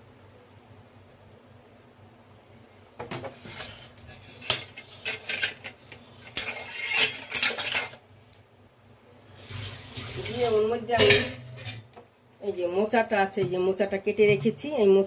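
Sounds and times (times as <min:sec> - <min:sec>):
steel kitchenware clattering: 0:03.2 - 0:08.0, 0:10.2 - 0:11.9.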